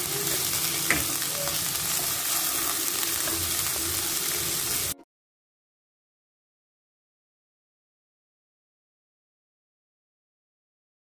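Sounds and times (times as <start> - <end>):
onion sizzling in oil: 0.0 - 5.0
spatula tap: 0.9 - 1.1.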